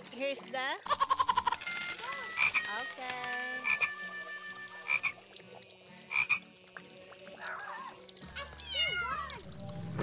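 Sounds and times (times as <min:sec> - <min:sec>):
frog croaking: 0:03.6 - 0:04.0, 0:04.8 - 0:05.2, 0:06.0 - 0:06.6.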